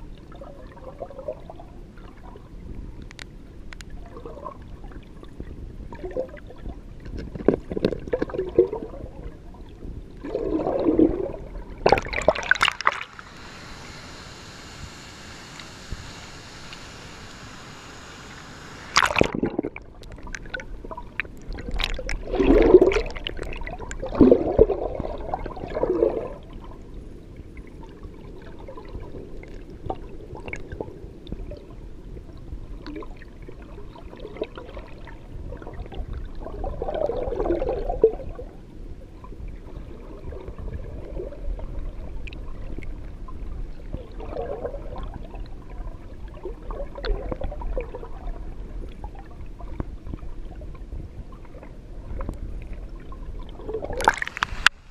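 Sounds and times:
muffled underwater gurgling: 10.2s - 26.6s
camera splashing into water: 11.9s - 13.3s, 18.9s - 20.5s, 53.9s - 54.8s.

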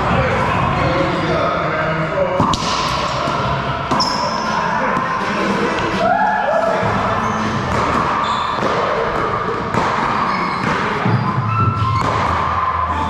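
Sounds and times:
racquetball bouncing: 2.4s - 6.0s, 6.8s - 12.7s.

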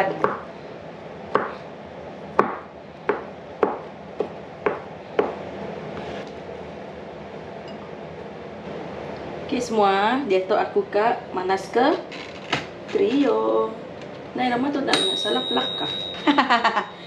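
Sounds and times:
knife chopping on cutting board: 1.4s - 1.6s.

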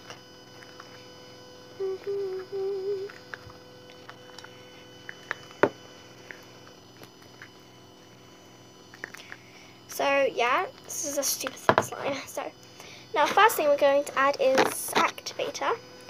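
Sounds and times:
girl humming: 1.8s - 3.2s.

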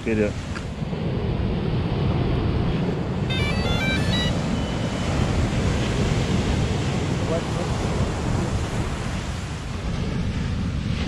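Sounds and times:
breaking surf: 0.0s - 11.0s
wind buffeting microphone: 0.0s - 11.0s
drone start-up beeps: 3.3s - 5.7s.

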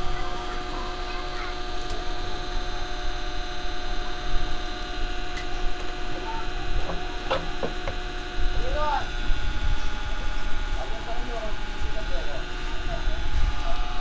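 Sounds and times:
steady electrical hum: 0.0s - 14.0s.

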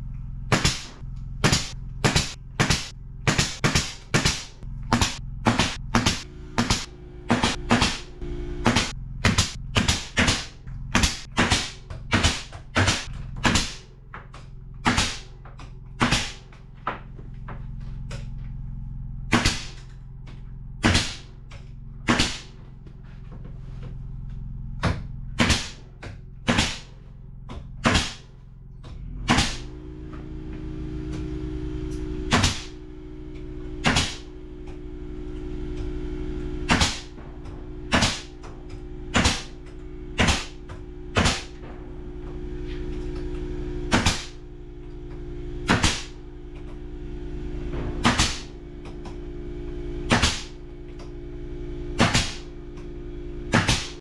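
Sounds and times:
steady low hum: 0.0s - 54.0s
nail gun shots into wood: 0.5s - 8.0s, 8.6s - 13.8s, 14.8s - 15.3s, 16.0s - 16.4s, 19.3s - 19.8s, 20.8s - 21.2s, 22.1s - 22.5s, 25.4s - 25.8s, 26.5s - 26.9s, 27.8s - 28.2s, 29.3s - 29.7s, 32.3s - 32.7s, 33.8s - 34.2s, 36.7s - 37.1s, 37.9s - 38.3s, 39.1s - 39.5s, 40.2s - 40.6s, 41.2s - 41.5s, 43.9s - 44.4s, 45.7s - 46.1s, 48.0s - 48.5s, 50.1s - 50.5s, 52.0s - 52.4s, 53.5s - 54.0s.

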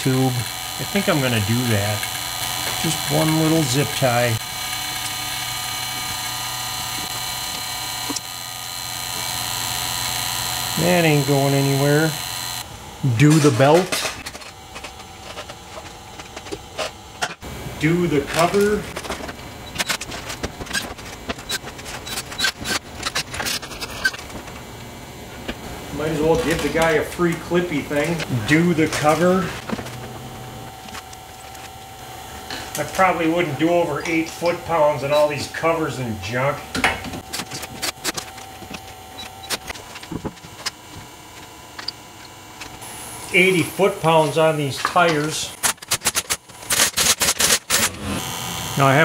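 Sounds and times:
hand tools and plastic parts clicking: 44.8s - 47.9s.

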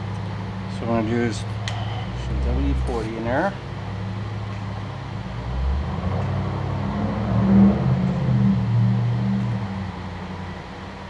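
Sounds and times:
low engine-like hum: 0.0s - 11.0s.

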